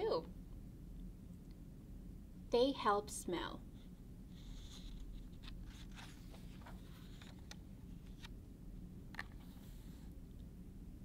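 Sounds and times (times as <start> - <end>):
steady low hum: 0.0 - 11.0
book page rustling: 4.4 - 8.4.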